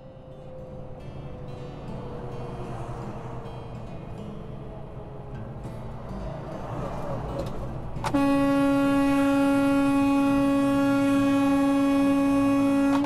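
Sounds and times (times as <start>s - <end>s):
truck air horn blast: 8.0s - 13.0s.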